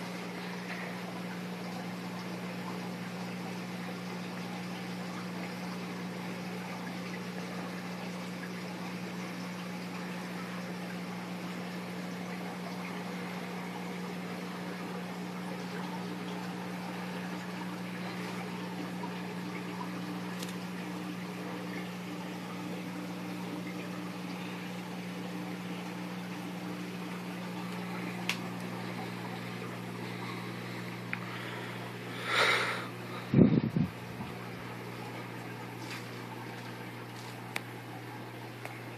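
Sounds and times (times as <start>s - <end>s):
aquarium bubbles bubbling: 0.0s - 38.9s
low pump hum: 0.0s - 38.9s.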